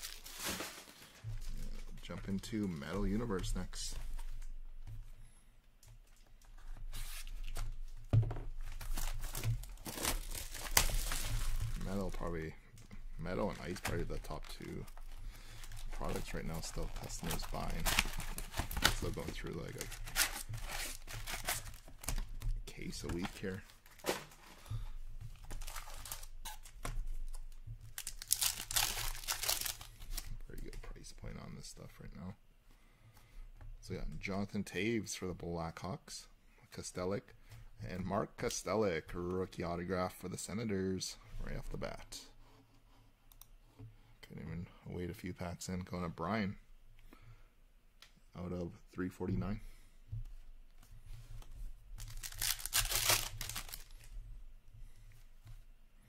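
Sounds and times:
foil wrapper crinkling: 0:00.0 - 0:02.0, 0:08.7 - 0:12.5, 0:13.3 - 0:26.7, 0:27.8 - 0:30.3, 0:52.0 - 0:54.1
box cutter tearing plastic wrap: 0:52.1 - 0:53.9.

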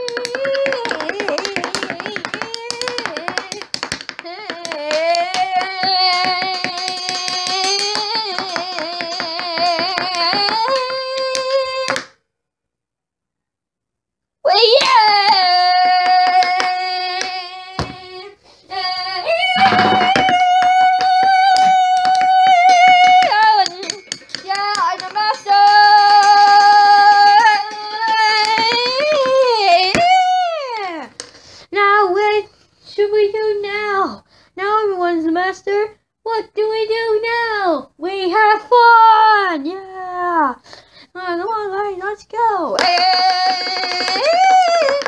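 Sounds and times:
child singing: 0:00.0 - 0:12.0, 0:14.4 - 0:31.1, 0:31.8 - 0:40.6, 0:41.2 - 0:45.0
rapid hand claps: 0:00.0 - 0:12.2, 0:14.8 - 0:18.0, 0:19.6 - 0:30.3, 0:42.8 - 0:45.0.

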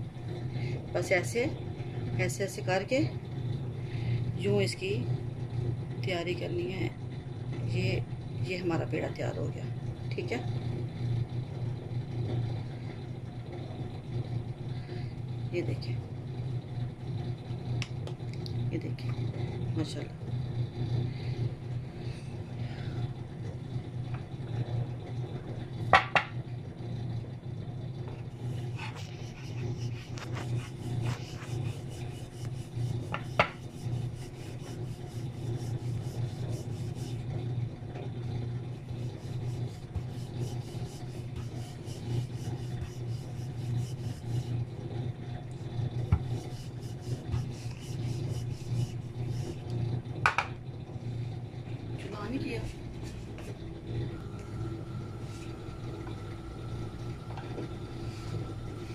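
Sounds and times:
steady low hum: 0:00.0 - 0:58.9
rolling pin rubbing on dough: 0:28.3 - 0:37.5, 0:38.7 - 0:44.8, 0:45.6 - 0:49.8, 0:52.6 - 0:53.6.

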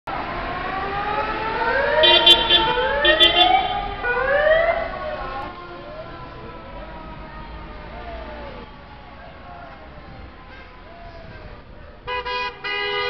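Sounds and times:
emergency vehicle siren: 0:00.1 - 0:12.4
horn honking: 0:02.0 - 0:03.9, 0:12.1 - 0:13.0.

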